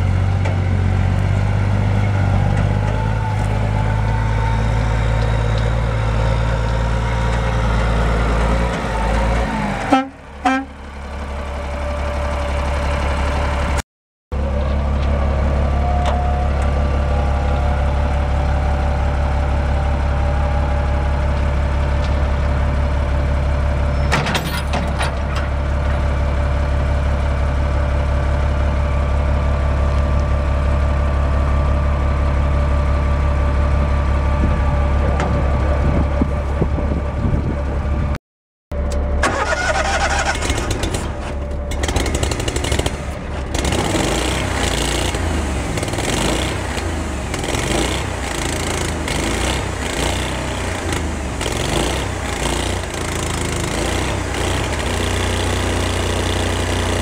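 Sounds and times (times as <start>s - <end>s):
diesel truck engine idling: 0.0s - 24.0s, 25.2s - 38.2s, 38.8s - 47.5s
generator engine pulsing: 38.8s - 57.0s
winch whining: 39.2s - 42.9s.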